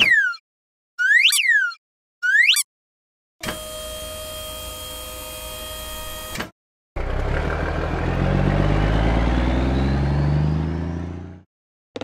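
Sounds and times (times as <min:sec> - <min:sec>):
truck engine starting and revving: 0:07.0 - 0:11.5.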